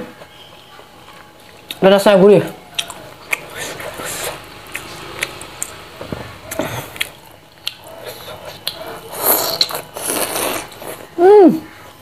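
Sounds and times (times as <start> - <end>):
chewing fried food: 0.2 - 11.8
lip smacks: 2.7 - 5.8, 6.5 - 10.8
wet mouth clicks: 2.7 - 5.8, 6.5 - 9.9
loud bite: 2.8 - 10.9.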